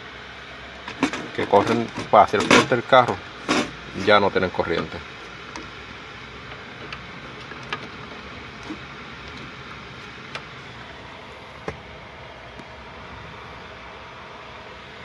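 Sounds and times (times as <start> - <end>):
faint handling clicks and taps: 0.8 - 3.7, 4.5 - 10.7.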